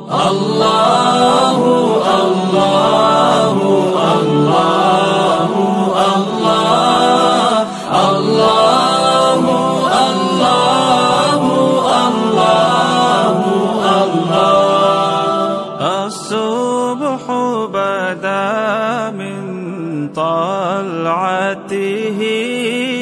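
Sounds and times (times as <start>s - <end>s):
layered voices chanting: 0.0s - 16.3s.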